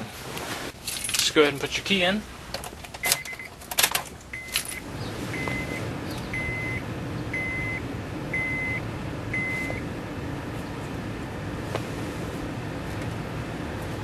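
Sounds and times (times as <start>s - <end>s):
dashboard warning chime beeping: 3.0s - 3.6s, 4.3s - 9.9s.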